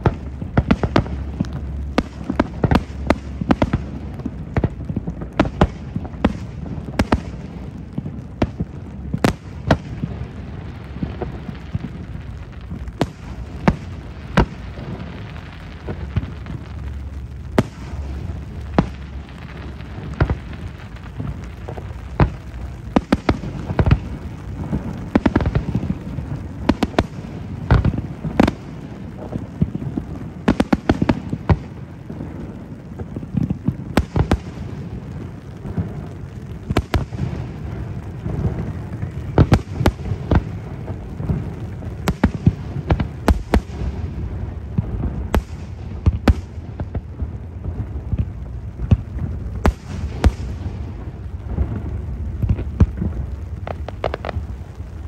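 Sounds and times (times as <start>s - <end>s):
low rumble: 0.0s - 30.5s
fireworks bangs: 0.0s - 55.0s.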